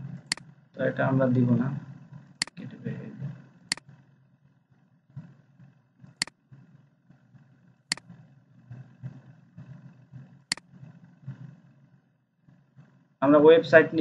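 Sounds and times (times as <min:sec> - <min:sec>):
faint low background rumble: 0:00.0 - 0:14.0
computer mouse clicks: 0:03.7 - 0:04.0, 0:07.9 - 0:11.5.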